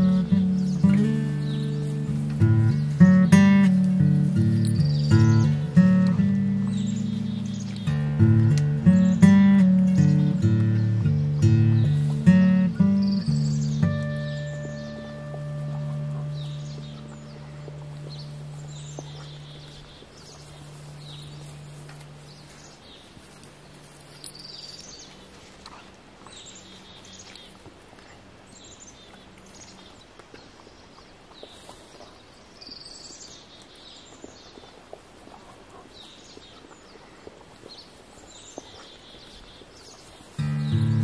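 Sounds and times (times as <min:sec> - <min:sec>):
low steady hum: 0:00.0 - 0:30.1
songbirds chirping: 0:00.0 - 0:41.0.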